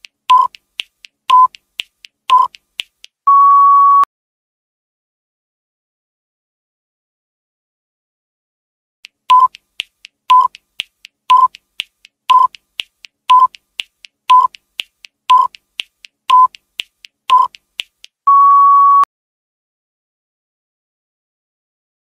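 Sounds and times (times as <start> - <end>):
light ticks: 0.0 - 3.2, 9.0 - 18.2
long steady beep: 3.3 - 4.1, 18.3 - 19.1
short beep with click: 3.3 - 4.1, 18.3 - 19.1.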